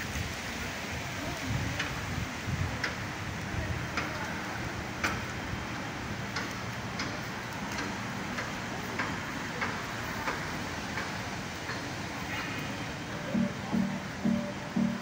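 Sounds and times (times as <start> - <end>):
low outdoor background hum: 4.1 - 15.0.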